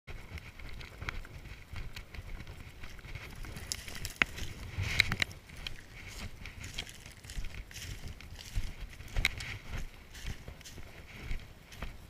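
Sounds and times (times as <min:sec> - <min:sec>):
footsteps: 0:00.1 - 0:12.0.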